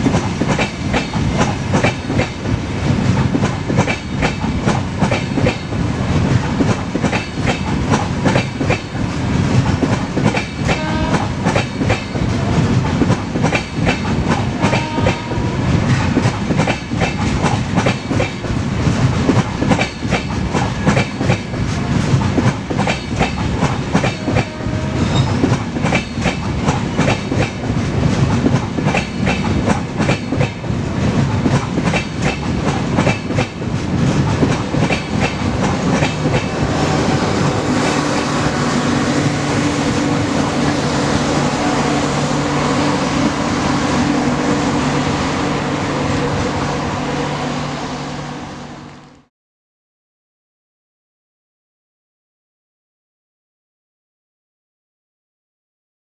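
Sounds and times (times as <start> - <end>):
train wheels clattering over joints: 0.0 - 15.3, 15.9 - 38.4.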